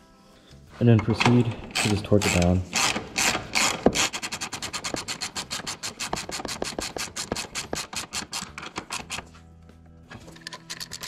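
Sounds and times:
socket ratchet clicking rapidly: 1.7 - 9.2.

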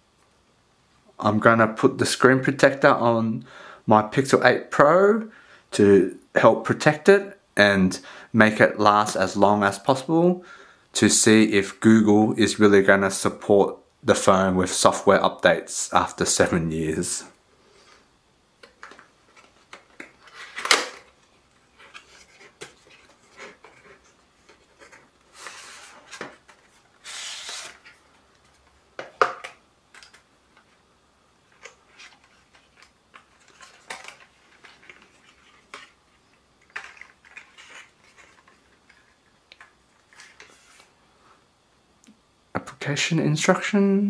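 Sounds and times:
paper seal tearing: 27.0 - 28.0.

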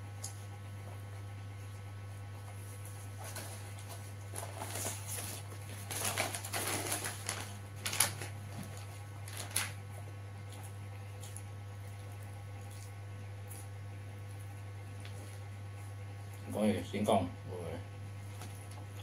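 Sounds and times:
steady low hum: 0.0 - 19.0
paper wrapper rustling and crackling: 3.2 - 9.8.

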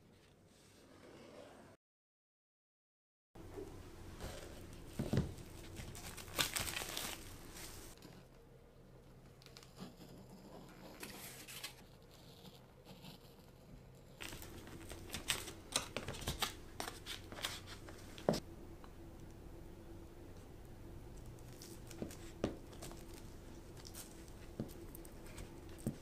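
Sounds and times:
paper mold crinkling: 4.3 - 8.1, 14.2 - 18.4.

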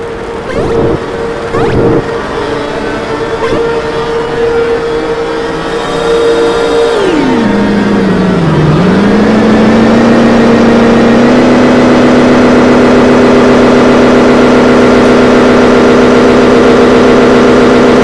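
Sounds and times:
loud electronic drone: 0.0 - 11.4.

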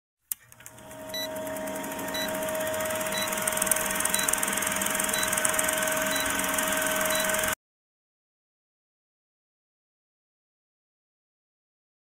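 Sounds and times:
click: 0.3 - 0.8
film projector whirring: 0.3 - 7.6
short high beeps: 5.1 - 7.6.

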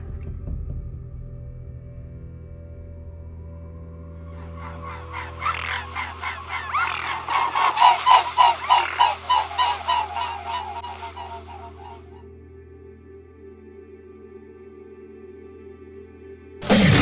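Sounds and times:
low musical drone: 0.0 - 17.0
swans honking: 4.3 - 12.3.

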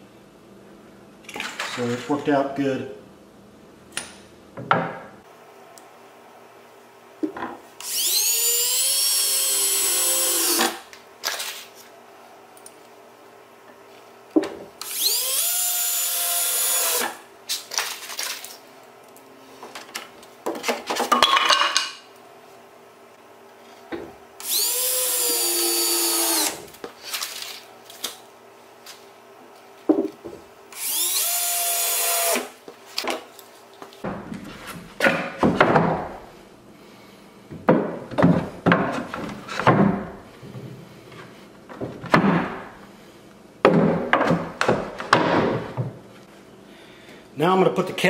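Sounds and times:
cordless drill driving screws: 7.8 - 10.8, 14.8 - 17.2, 24.4 - 26.6, 30.7 - 32.6
wooden boards knocking and clattering: 34.1 - 36.2, 37.5 - 40.6, 41.7 - 42.8, 43.6 - 46.0.

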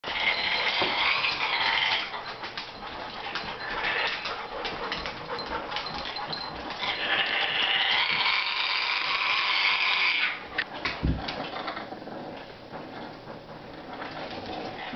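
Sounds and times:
parrot growling: 0.1 - 2.2, 6.8 - 10.4.

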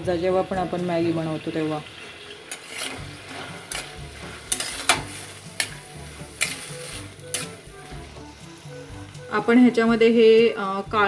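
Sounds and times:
vegetables frying in oil: 0.0 - 11.0
metal spatula scraping pan: 2.5 - 8.8
spatula clinking against pan: 4.5 - 6.7, 7.3 - 7.6.

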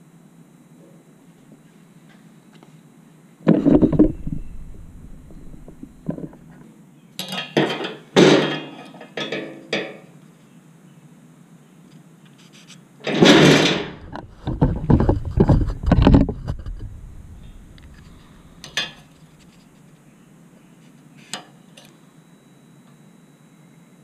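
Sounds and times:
heavy knocks: 3.5 - 6.4, 13.2 - 19.0
tools clattering on steel workbench: 7.2 - 10.0, 17.4 - 19.1.

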